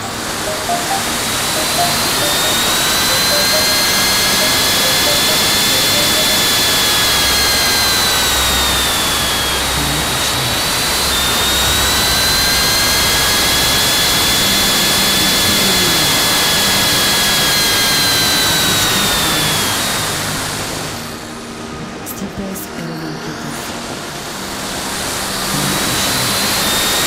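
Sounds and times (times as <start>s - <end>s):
high airflow whistle: 0.0s - 9.6s.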